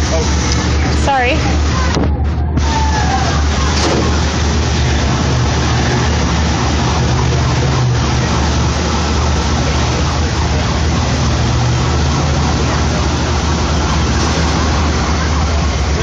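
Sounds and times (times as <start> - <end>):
street noise: 0.0 - 16.0
vehicle engine idling: 0.0 - 16.0.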